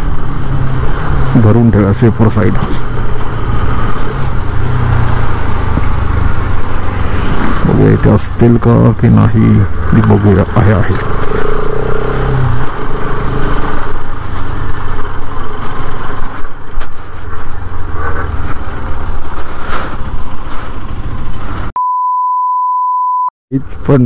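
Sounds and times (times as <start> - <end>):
motorcycle engine running: 2.6 - 8.0
steady electronic beep tone: 21.8 - 23.3.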